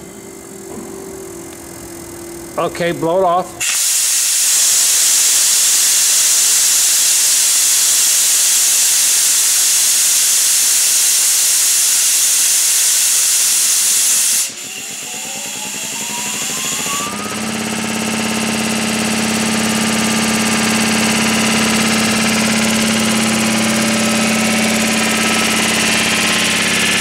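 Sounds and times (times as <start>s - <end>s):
compressed air hissing: 3.6s - 14.6s
electric motor whine: 14.6s - 17.6s.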